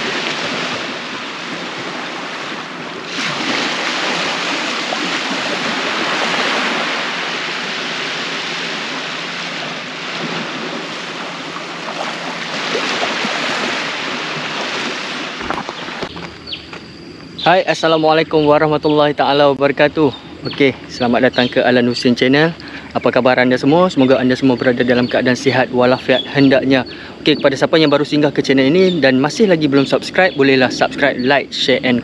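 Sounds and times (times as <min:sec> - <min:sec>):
small waves washing onto beach: 0:00.0 - 0:16.3.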